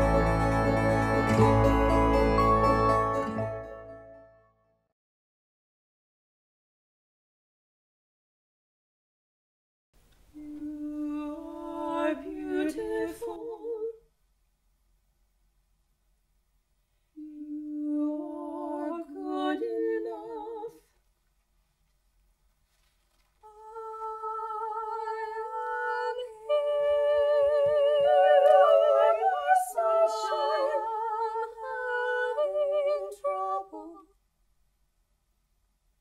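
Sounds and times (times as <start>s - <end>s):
a cappella vocal ensemble singing: 10.4s - 14.0s, 17.2s - 20.9s, 23.5s - 34.1s.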